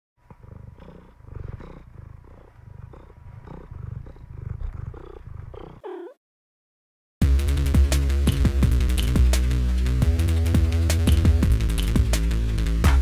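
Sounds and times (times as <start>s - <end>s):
cat purring: 0.2s - 6.2s.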